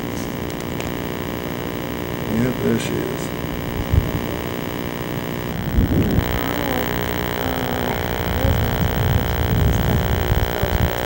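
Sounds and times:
electrical hum: 0.0 - 11.0
wind buffeting microphone: 3.6 - 4.5, 5.4 - 11.0.

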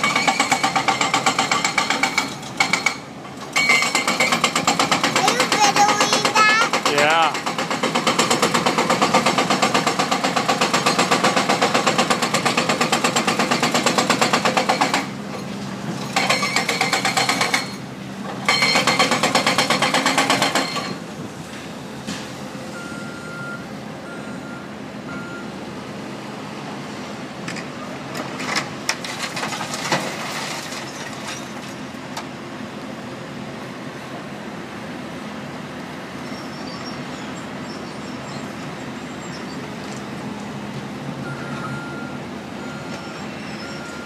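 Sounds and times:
hydraulic breaker hammering concrete: 0.0 - 15.2, 16.1 - 21.0
heavy equipment engines droning: 0.0 - 44.0
reversing alarm beeps: 22.7 - 25.6, 41.2 - 44.0.

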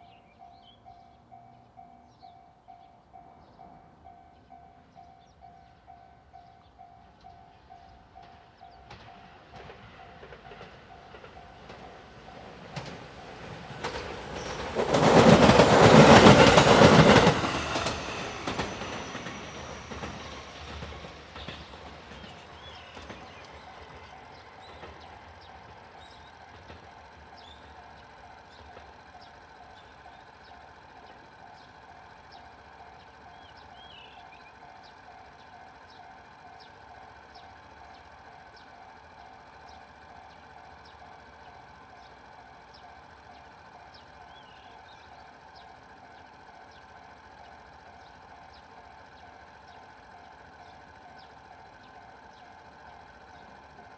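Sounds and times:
level crossing warning bell: 0.0 - 12.9
train passing at speed: 0.0 - 53.9.

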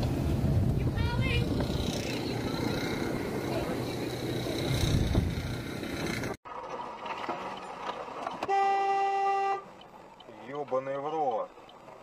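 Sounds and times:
road noise: 0.0 - 12.0
rushing street noise: 0.0 - 12.0
car horn honk: 8.4 - 9.7.

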